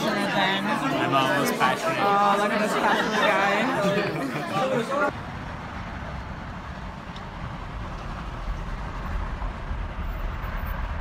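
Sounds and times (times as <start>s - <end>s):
cars passing rumble: 5.0s - 11.0s.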